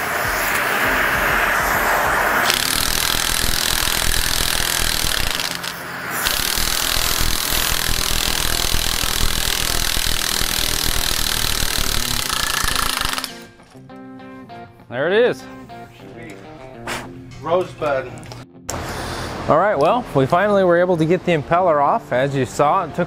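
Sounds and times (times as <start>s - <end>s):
torch hissing: 0.0s - 13.4s
impact wrench hammering: 2.4s - 13.5s.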